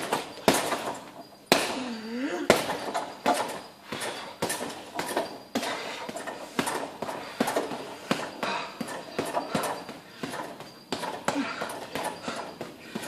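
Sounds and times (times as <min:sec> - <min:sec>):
gloves punching heavy bag: 0:00.0 - 0:13.0.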